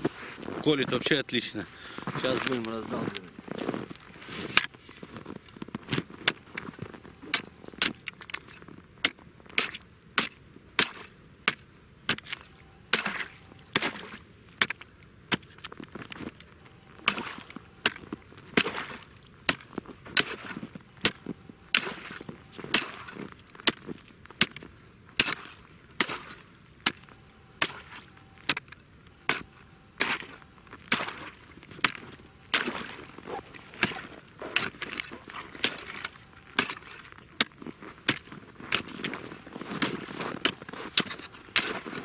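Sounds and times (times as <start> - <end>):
ice crunching and splintering: 0.0 - 42.0
ice chisel chopping into ice: 9.0 - 15.7, 17.0 - 27.0, 27.6 - 28.7, 29.3 - 30.3, 30.9 - 33.0, 33.8 - 42.0.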